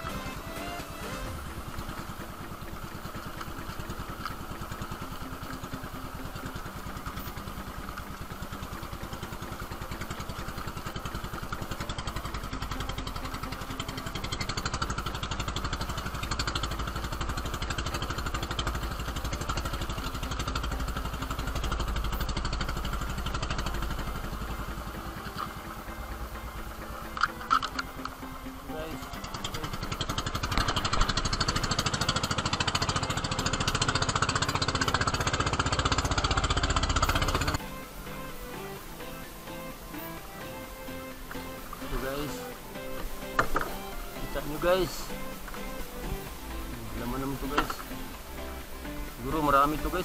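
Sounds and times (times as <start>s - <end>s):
boat engine puttering: 0.0s - 50.0s.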